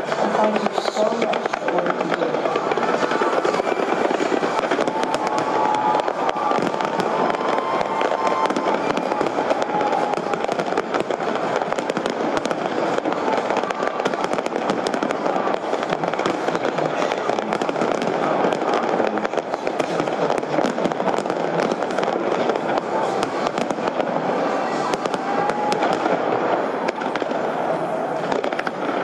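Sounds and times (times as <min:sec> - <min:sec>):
fireworks bangs and crackles: 0:00.0 - 0:29.0.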